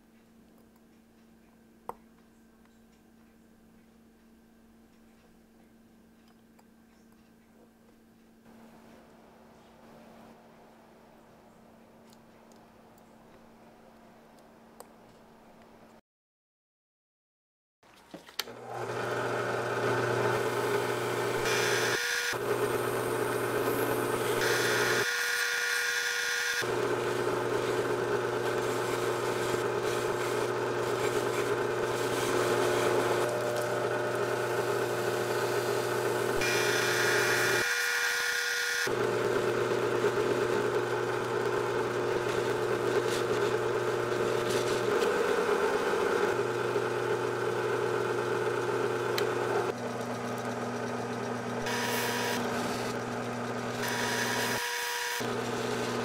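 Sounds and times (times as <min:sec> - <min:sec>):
polishing motor humming: 0:18.5 - 0:56.0.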